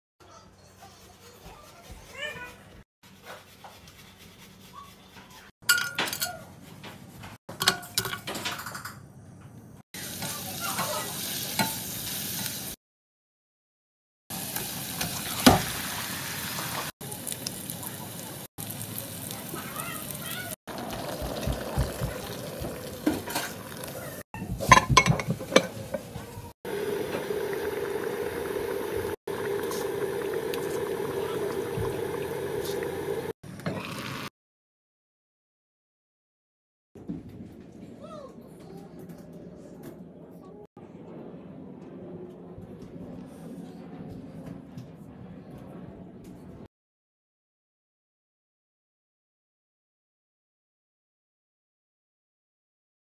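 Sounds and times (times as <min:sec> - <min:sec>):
kitchenware clinking on a pot: 0:05.6 - 0:06.4, 0:07.5 - 0:09.0, 0:24.4 - 0:26.1
broth boiling with bubbling hiss: 0:14.4 - 0:34.3
pot simmering: 0:14.4 - 0:34.3
metal pot lid clattering: 0:24.6 - 0:26.0.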